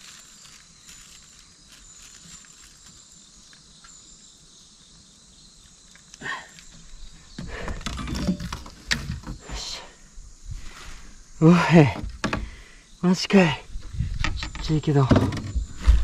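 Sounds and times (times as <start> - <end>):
insects shrilling: 0.0 - 15.0
rumbling and clicking handling noise: 6.8 - 9.4, 13.8 - 16.0.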